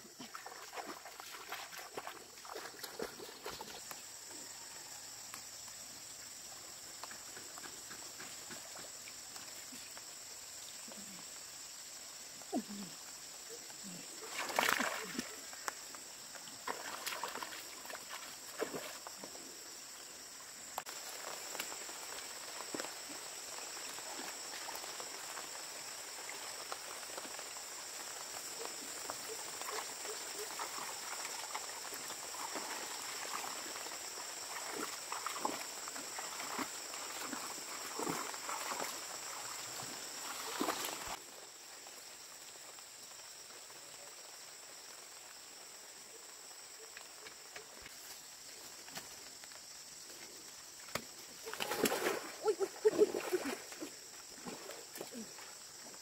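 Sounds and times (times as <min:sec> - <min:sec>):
splashing in muddy water: 0:00.0 - 0:03.9, 0:14.1 - 0:19.4, 0:28.9 - 0:41.2, 0:50.9 - 0:55.6
insects chirring: 0:00.0 - 0:56.0.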